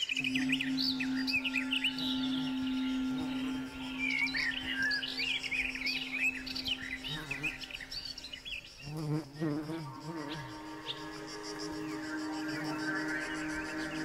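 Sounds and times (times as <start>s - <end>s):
steady low hum: 0.0s - 8.8s
wavering low buzz: 0.0s - 9.1s, 9.8s - 14.0s
small birds chirping: 0.0s - 14.0s.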